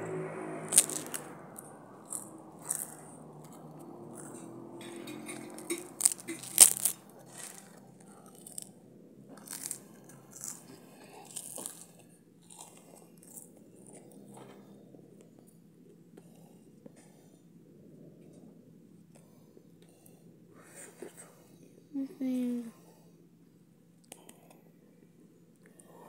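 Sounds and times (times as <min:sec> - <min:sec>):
rice cakes being chewed: 0:00.7 - 0:17.0.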